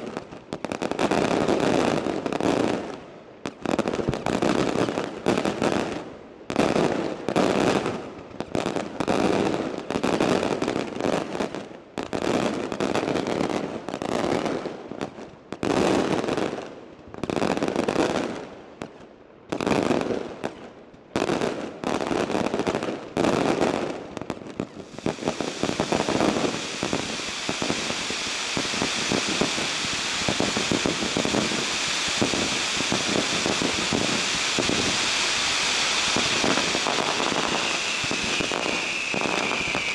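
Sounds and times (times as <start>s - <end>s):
fireworks crackling: 0.0s - 39.9s
fireworks bangs: 21.2s - 39.9s.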